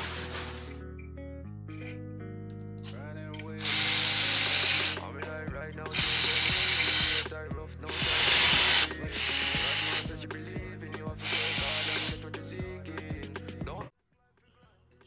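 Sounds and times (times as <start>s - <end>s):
background music with steady beat: 0.0s - 15.0s
electric ratchet spinning bolts: 3.6s - 5.1s, 5.9s - 10.1s, 11.2s - 12.2s.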